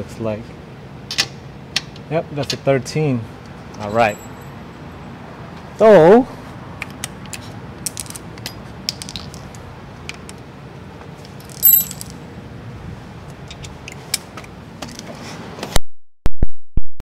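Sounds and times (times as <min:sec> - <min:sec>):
metal tools clinking: 0:03.8 - 0:04.6, 0:11.4 - 0:12.2.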